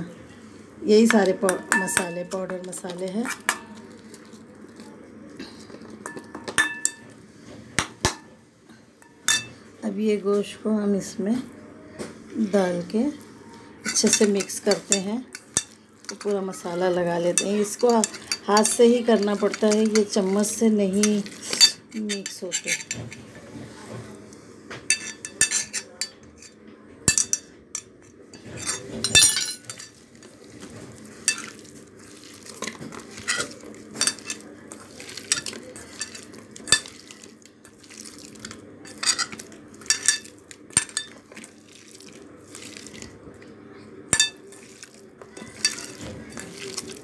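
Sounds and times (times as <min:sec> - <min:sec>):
hands mixing meat in marinade: 0:13.9 - 0:23.0, 0:29.6 - 0:47.0.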